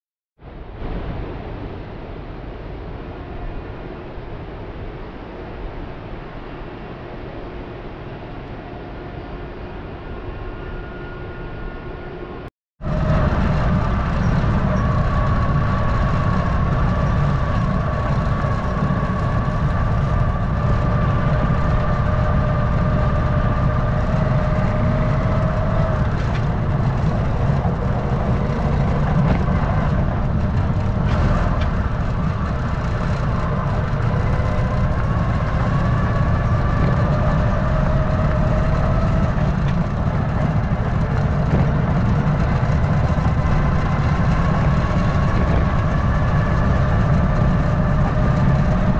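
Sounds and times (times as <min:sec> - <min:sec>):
wind: 0:00.4 - 0:48.9
faint wavering hum: 0:00.6 - 0:23.5.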